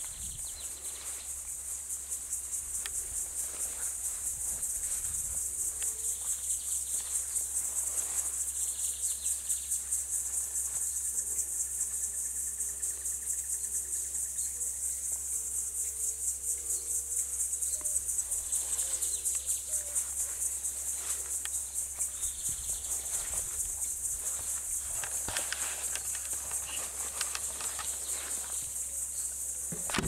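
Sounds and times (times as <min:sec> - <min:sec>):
faint birdsong: 0:00.0 - 0:01.6, 0:17.6 - 0:29.8
insects droning: 0:00.0 - 0:30.0.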